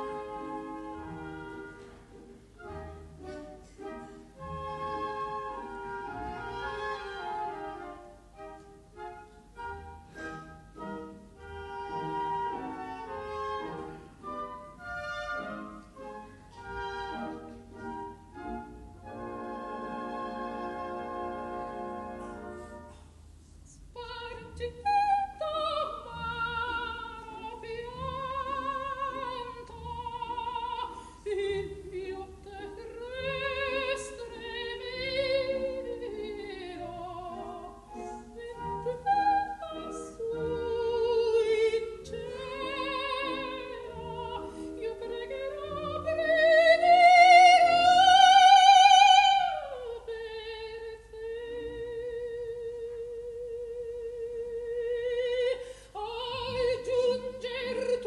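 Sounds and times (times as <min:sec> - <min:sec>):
orchestra playing: 0:00.0 - 0:23.0
soprano singing opera: 0:23.9 - 0:58.0.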